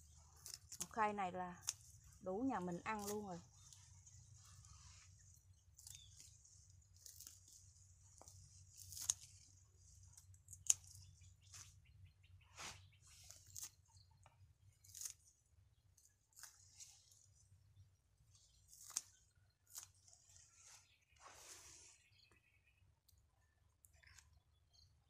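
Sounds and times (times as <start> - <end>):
leaves rustling: 0.0 - 13.8, 16.0 - 17.6, 18.2 - 22.0
scissors snipping stems: 0.4 - 11.7, 13.2 - 13.8, 14.8 - 15.3, 16.0 - 17.2, 18.4 - 20.0.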